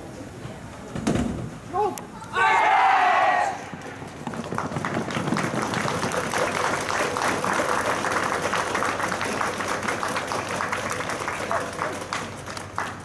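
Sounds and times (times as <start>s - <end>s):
crowd applauding: 4.0s - 13.0s.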